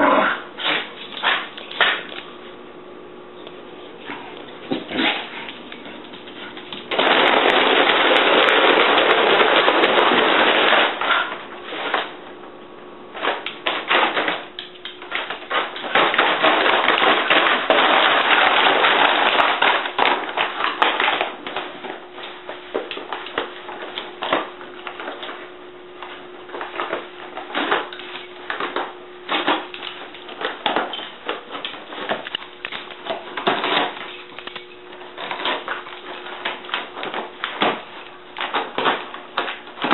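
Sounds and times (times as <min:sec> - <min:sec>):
dog tearing paper bag: 0:04.7 - 0:12.2, 0:13.1 - 0:39.9
paper rustling and crumpling: 0:05.6 - 0:12.2.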